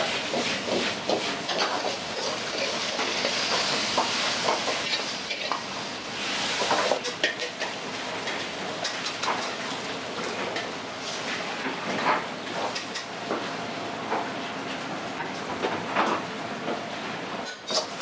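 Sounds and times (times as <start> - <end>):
food sizzling in a wok: 0.0 - 11.6, 17.4 - 18.0.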